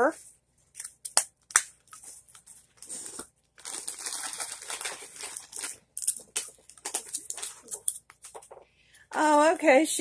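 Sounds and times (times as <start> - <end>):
plastic packaging rustling: 1.8 - 9.7
plastic packaging clicking: 3.6 - 8.6.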